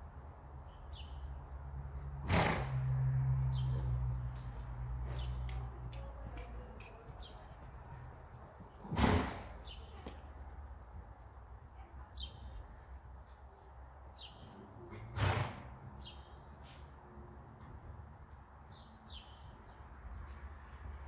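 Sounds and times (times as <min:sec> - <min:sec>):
small birds chirping: 0:00.2 - 0:01.6, 0:03.5 - 0:14.9, 0:16.0 - 0:16.8, 0:18.6 - 0:21.0.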